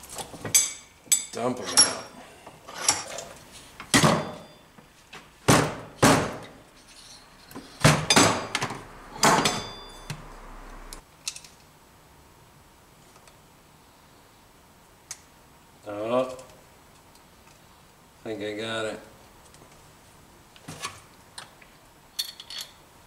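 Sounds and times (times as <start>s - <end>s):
metal clunks and knocks: 5.4s - 10.3s.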